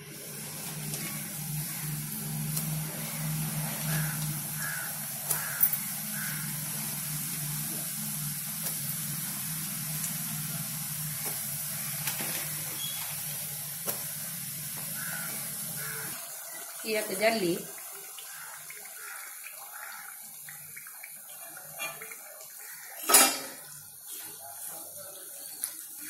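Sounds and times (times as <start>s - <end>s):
dough deep-frying in oil: 0.0s - 26.0s
oil popping: 0.4s - 16.1s.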